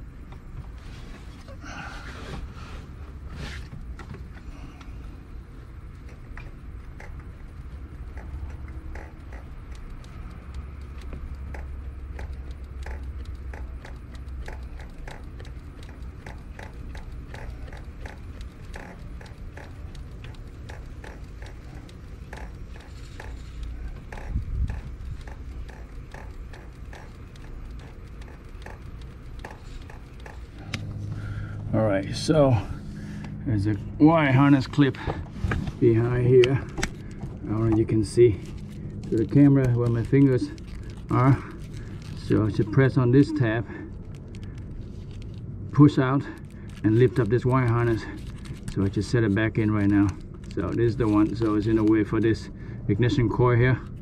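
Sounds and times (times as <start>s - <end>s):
ratchet wrench clicking: 6.0s - 31.4s.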